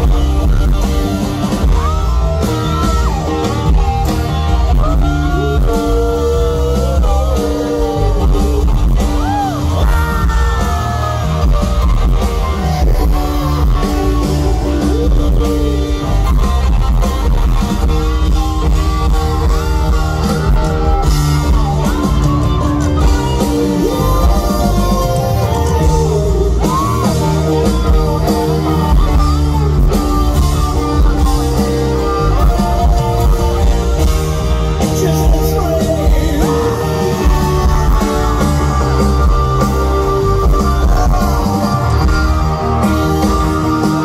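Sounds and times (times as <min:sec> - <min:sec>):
festival crowd: 0:00.0 - 0:44.0
live rock band playing: 0:00.0 - 0:44.0
person singing: 0:00.0 - 0:44.0.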